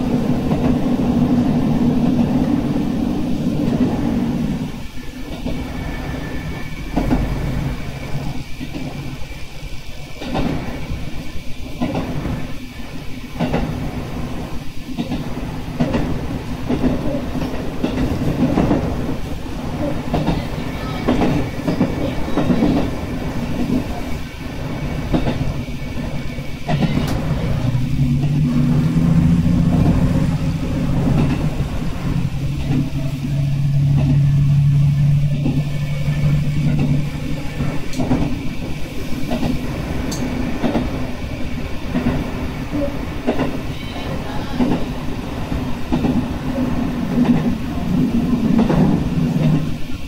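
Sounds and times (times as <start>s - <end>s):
low engine hum: 27.2s - 37.5s.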